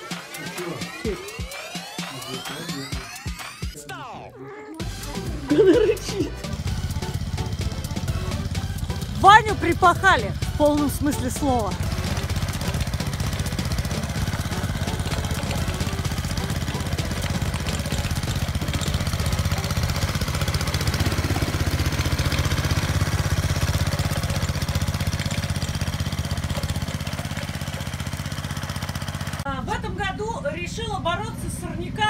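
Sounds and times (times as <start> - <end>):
garden tiller engine running: 0.0 - 3.8, 4.8 - 32.0
tines churning soil: 4.9 - 29.5.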